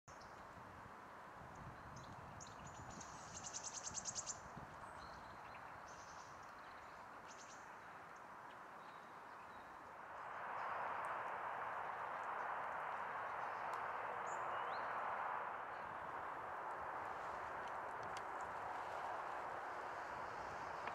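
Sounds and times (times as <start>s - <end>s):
steady rushing background: 9.9s - 20.9s.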